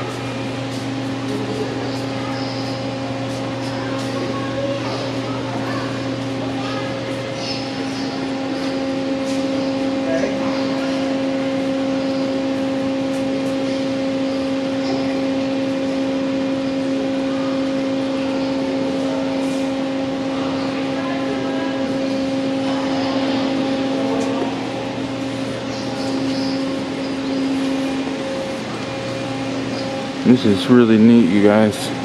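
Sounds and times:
ventilation fans humming: 0.0 - 32.0.

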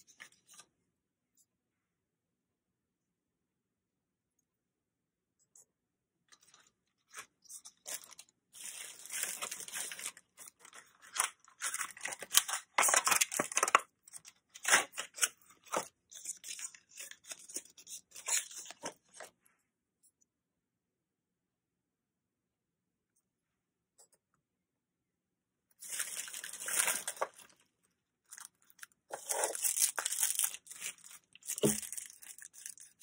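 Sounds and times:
plastic packaging tearing and crinkling: 7.0 - 19.1, 25.8 - 27.6, 28.3 - 33.0.

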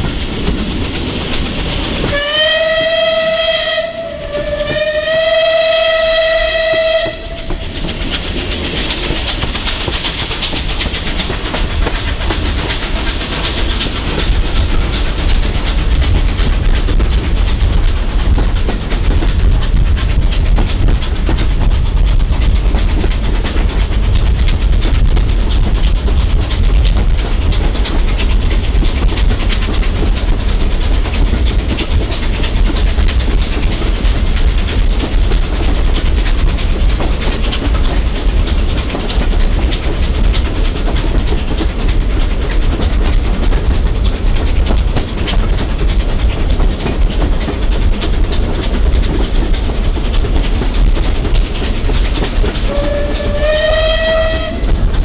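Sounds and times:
train rumbling in tunnel: 0.0 - 55.0
steam locomotive whistle: 2.0 - 7.6, 52.6 - 54.7.

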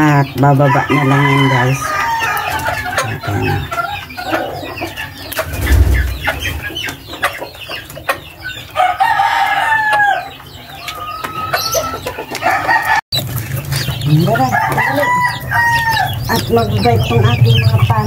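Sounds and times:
chickens clucking: 0.0 - 18.0
rooster crowing: 0.7 - 2.8, 8.8 - 10.3, 14.3 - 16.2
chickens pecking plastic trough: 10.8 - 16.6.

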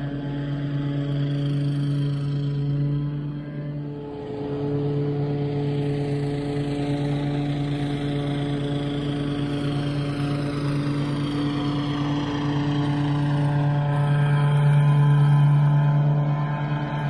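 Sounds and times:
lawn mower engine running: 0.0 - 17.0.

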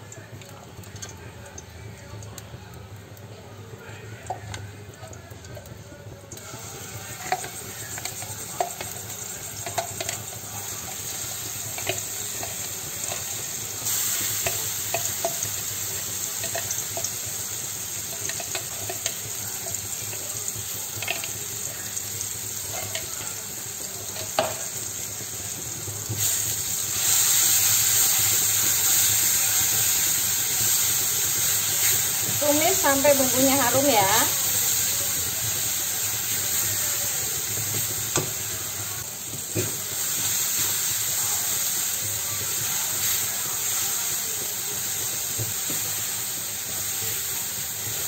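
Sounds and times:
paste sizzling in hot oil: 2.8 - 48.0
spatula tapping wok: 7.2 - 26.3.

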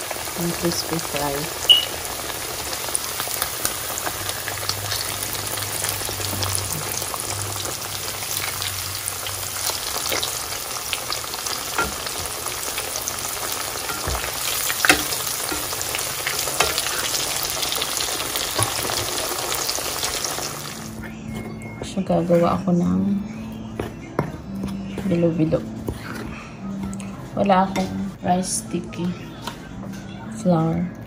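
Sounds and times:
meat sizzling in hot oil: 0.0 - 20.9.

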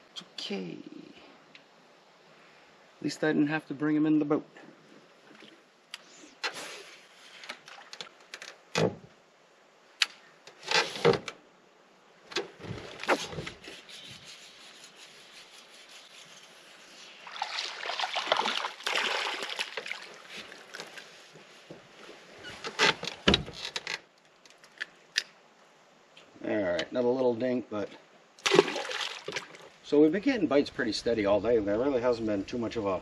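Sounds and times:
fish splashing: 17.1 - 21.1, 28.4 - 29.8.

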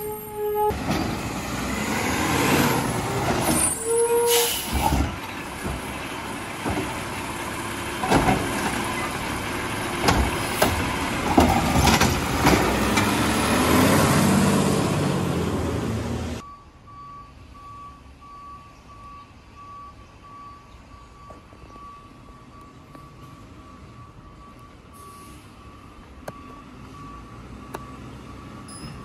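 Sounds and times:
air brakes squealing and hissing: 2.6 - 5.6, 24.8 - 25.9, 28.5 - 29.0
garbage truck engine running: 4.5 - 16.4
cart banging against hopper: 8.0 - 9.1, 10.0 - 13.2.

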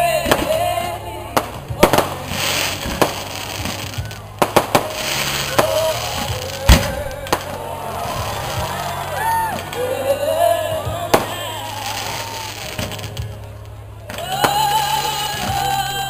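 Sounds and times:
fireworks bursting bangs: 0.2 - 9.9, 10.8 - 15.8
crackling hiss of sparks: 1.9 - 7.6.

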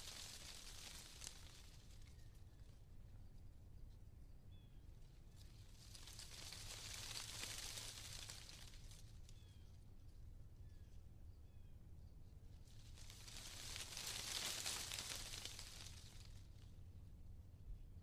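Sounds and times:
wind rustling tree leaves: 0.0 - 2.7, 5.0 - 9.8, 12.6 - 16.8.

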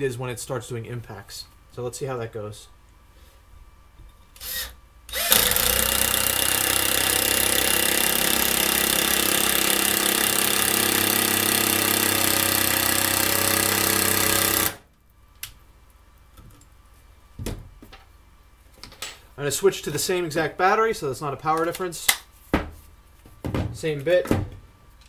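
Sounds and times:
impact driver hammering: 5.2 - 14.8.

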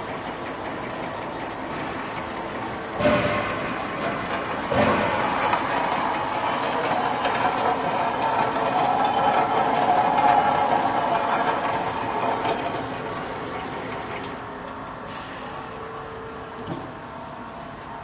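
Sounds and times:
machine hum: 0.0 - 15.0
bottling machine clattering: 2.9 - 14.4.

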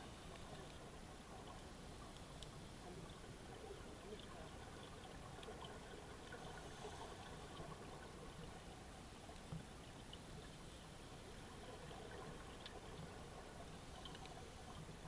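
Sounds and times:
small underwater clicks: 0.0 - 15.0
underwater hiss: 6.4 - 8.0.

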